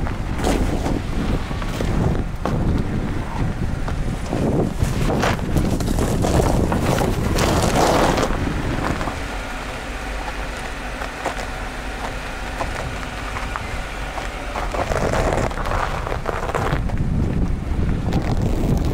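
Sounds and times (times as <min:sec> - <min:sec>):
wind rushing over microphone: 0:00.0 - 0:09.7, 0:11.1 - 0:18.9
tyres ploughing through snow: 0:00.0 - 0:18.9.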